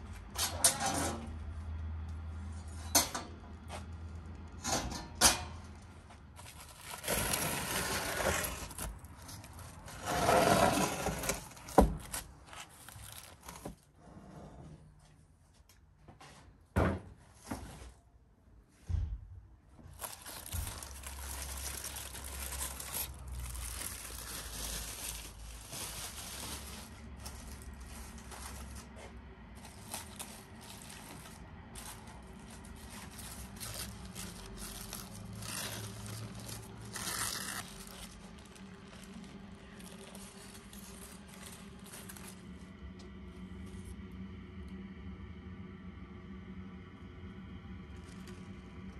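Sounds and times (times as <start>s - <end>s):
aluminium foil crinkling: 6.3s - 10.0s, 11.2s - 13.8s, 19.9s - 42.7s.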